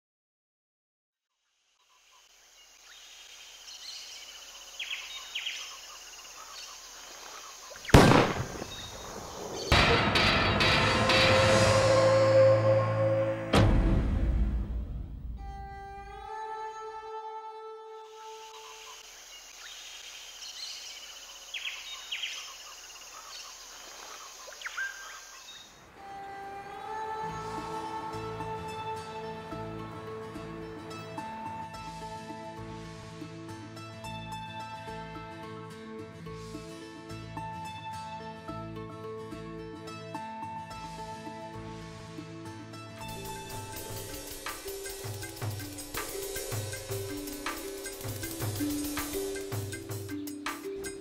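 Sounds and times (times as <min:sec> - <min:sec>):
insect hiss with rapid trill: 0:01.4 - 0:09.7, 0:18.1 - 0:33.0, 0:43.0 - 0:51.0
bird chirps: 0:01.8 - 0:09.7, 0:18.4 - 0:25.9
gunshot: 0:07.9 - 0:11.0
ominous music with sharp hits: 0:09.6 - 0:15.9
savanna ambience: 0:21.0 - 0:32.9, 0:43.0 - 0:51.0.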